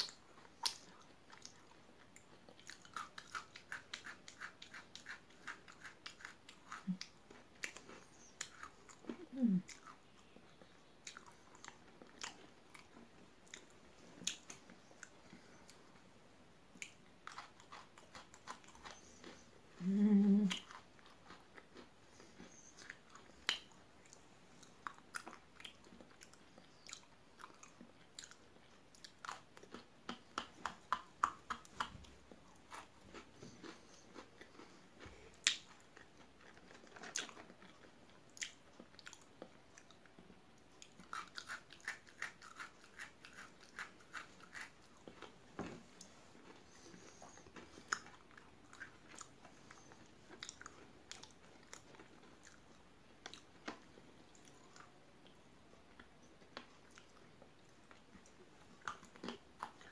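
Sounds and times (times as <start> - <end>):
biscuit sticks crunching: 16.8 - 19.5, 40.8 - 54.9.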